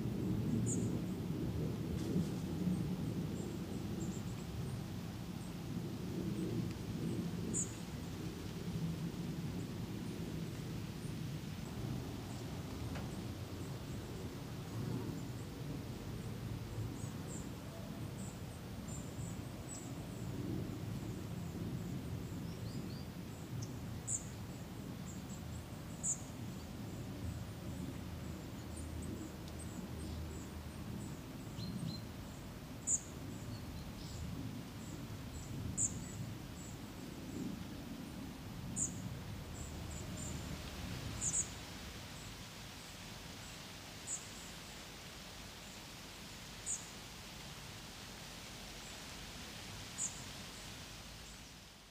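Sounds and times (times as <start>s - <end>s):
low outdoor rumble: 0.0s - 51.3s
soft hiss: 0.0s - 51.9s
songbird chirping: 21.0s - 44.8s, 46.6s - 47.0s, 49.9s - 51.6s.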